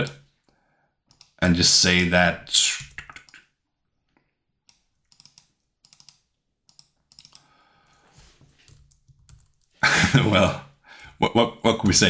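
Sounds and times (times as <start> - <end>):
computer keyboard clicks: 1.1 - 1.4, 4.7 - 7.5
mouse clicks: 1.1 - 1.4.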